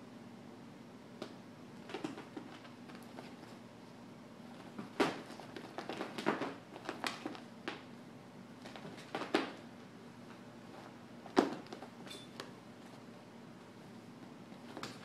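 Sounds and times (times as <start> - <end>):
cat paws scrabbling on floor: 4.5 - 7.8.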